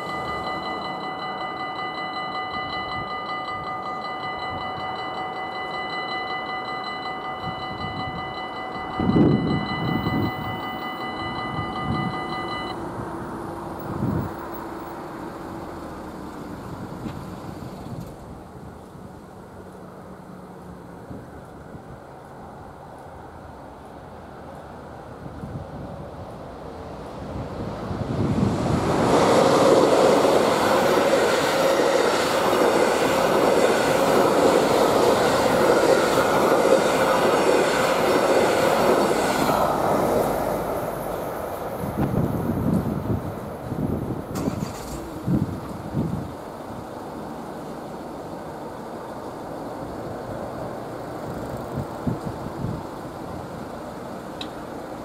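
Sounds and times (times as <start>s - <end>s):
level crossing bell ringing: 0.0s - 12.8s
electric train passing: 0.0s - 55.0s
wheels rumbling on rail: 0.0s - 55.0s.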